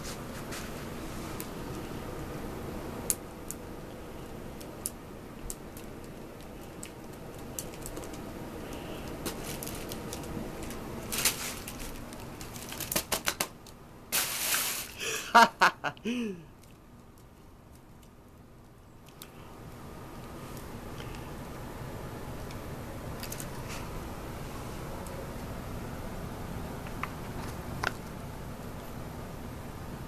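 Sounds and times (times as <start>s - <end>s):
fabric tunnel rustling and crinkling: 9.0s - 13.0s.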